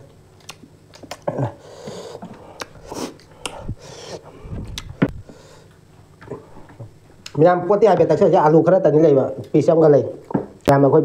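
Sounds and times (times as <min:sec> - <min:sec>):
chewing with mouth clicks: 0:00.4 - 0:01.4, 0:04.6 - 0:05.0.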